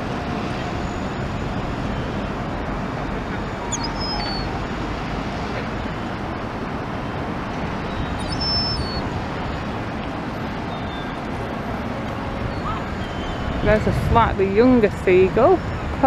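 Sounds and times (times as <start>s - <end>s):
traffic noise: 0.0s - 16.0s
high bird chirps: 3.7s - 4.5s, 7.9s - 9.0s.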